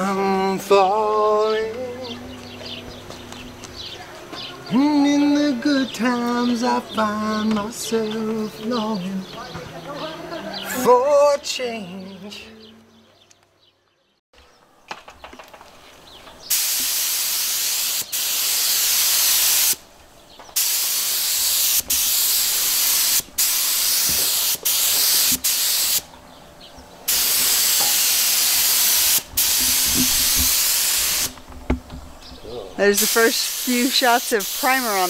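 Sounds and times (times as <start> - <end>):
spray gun hissing: 16.5 - 19.8, 20.6 - 26.1, 27.1 - 31.4, 32.8 - 35.0.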